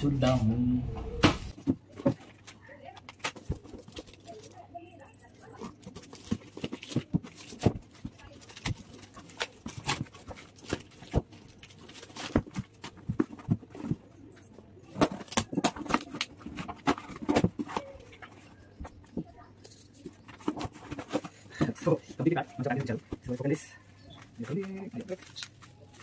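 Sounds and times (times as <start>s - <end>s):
plastic wrapping rustling: 1.5s - 26.0s
cardboard crackling and ripping: 5.6s - 14.1s, 14.9s - 18.6s, 19.8s - 23.6s, 24.2s - 26.0s.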